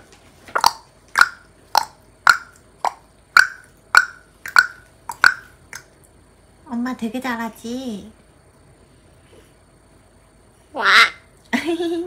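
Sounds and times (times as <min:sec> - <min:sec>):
hollow mouth pops: 0:00.6 - 0:05.9.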